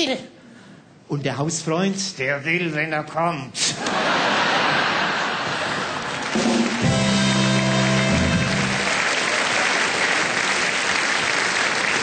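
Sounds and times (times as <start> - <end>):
audience laughing: 3.8 - 6.8, 8.9 - 10.3
audience applauding: 3.9 - 12.0
brass band chord: 6.4 - 9.0.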